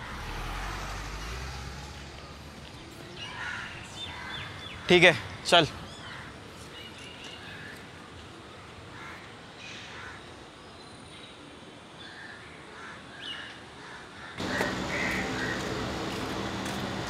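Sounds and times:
street ambience: 0.0s - 17.0s
crows cawing: 3.2s - 6.4s, 9.0s - 9.3s, 12.8s - 16.2s.

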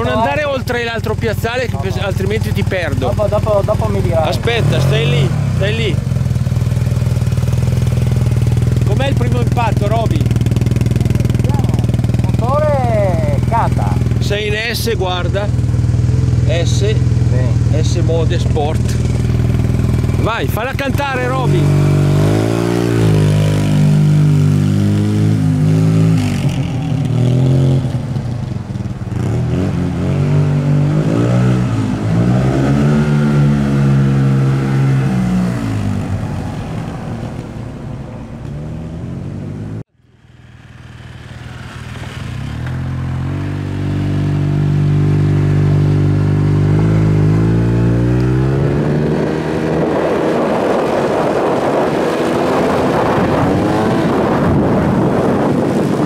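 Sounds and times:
scooter engine revving: 0.0s - 56.0s
wind rush: 48.4s - 56.0s.

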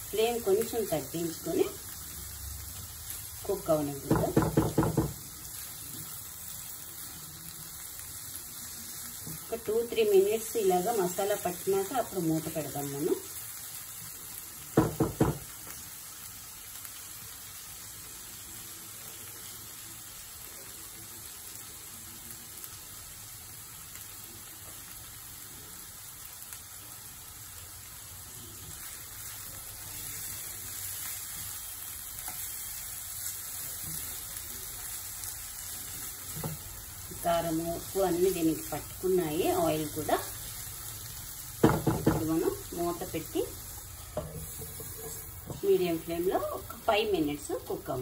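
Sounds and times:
food sizzling in oil: 0.0s - 48.0s
spatula knocking on pan: 4.0s - 5.2s, 14.8s - 15.5s, 41.6s - 42.5s.

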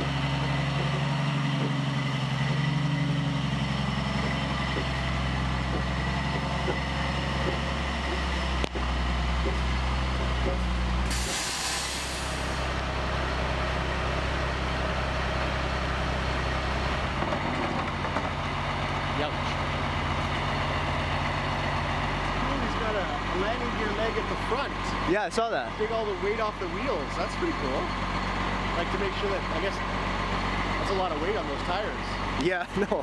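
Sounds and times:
diesel engine running: 0.0s - 33.0s
air brakes hissing: 11.0s - 12.7s.

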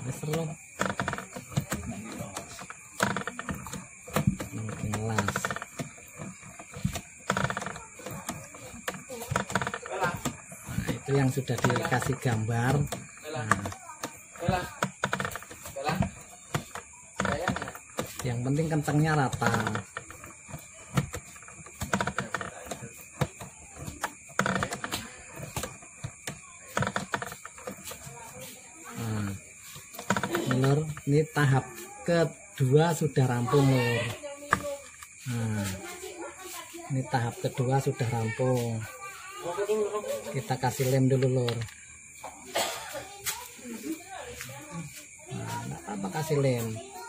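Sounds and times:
clicking and ticking mechanism: 0.0s - 28.0s
coil winding machine turning: 0.0s - 41.8s.

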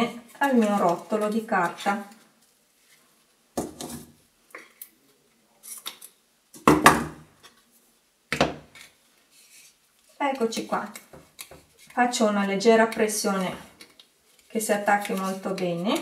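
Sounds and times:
tape roll rustling and knocking: 3.6s - 4.2s.

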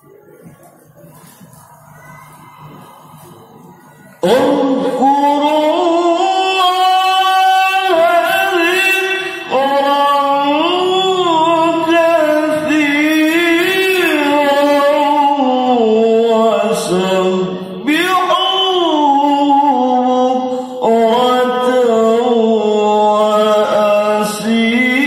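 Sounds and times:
man reciting melodically: 4.2s - 25.0s.

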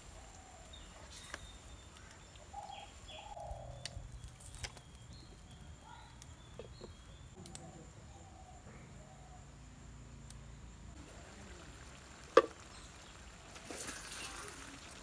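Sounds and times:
birds calling: 0.0s - 7.4s
faint outdoor background: 0.0s - 15.0s.

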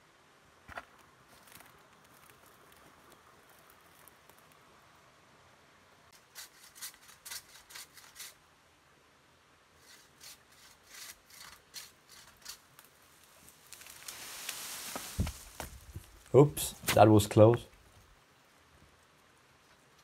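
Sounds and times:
pruning saw rasping strokes: 6.2s - 8.4s, 9.8s - 12.7s.

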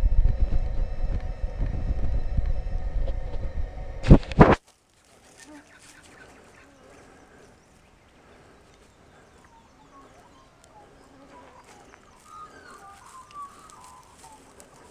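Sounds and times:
ticks and rustles in leaves: 4.1s - 14.9s
faint bird chirping: 5.2s - 14.9s.

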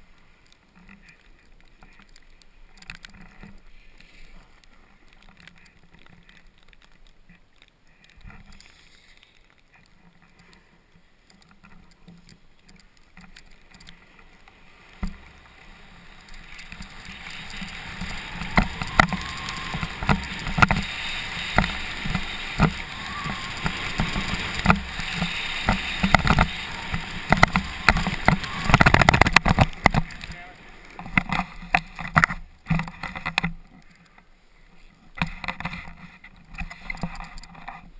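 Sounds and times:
snowboard scraping over snow: 13.4s - 32.6s.

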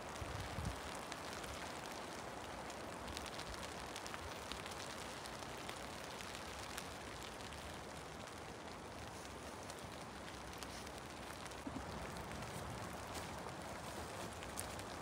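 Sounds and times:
light rain falling: 0.0s - 15.0s
raindrop ticks: 0.0s - 15.0s.

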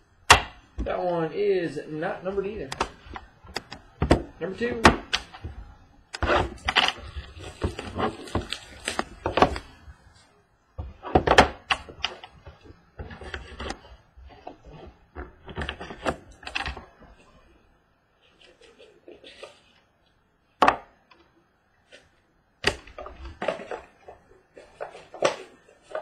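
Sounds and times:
plastic wrapper crinkling and tearing: 6.1s - 10.3s.

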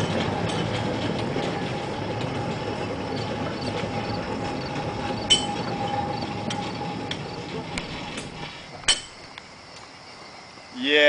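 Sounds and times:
mine cars rumbling on rail: 0.0s - 10.8s
metallic clinks and clanks: 5.2s - 6.8s, 8.2s - 9.3s.

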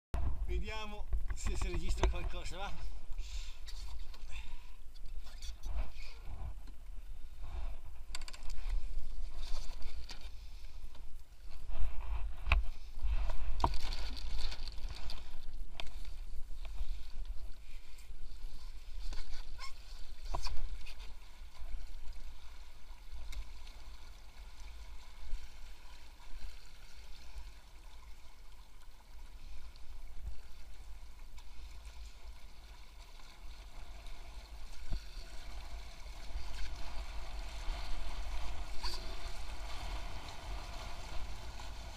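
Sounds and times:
water rushing along boat hulls: 12.7s - 41.9s.

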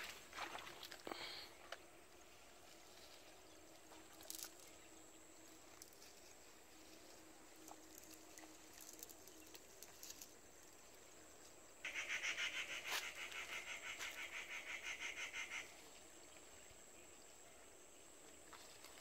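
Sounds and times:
rapid pulsing animal call: 11.8s - 15.7s.

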